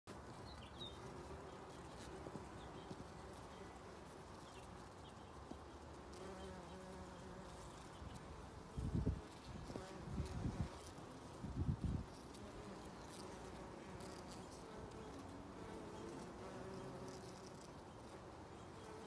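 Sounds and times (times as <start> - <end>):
bee buzzing: 5.7 - 19.0.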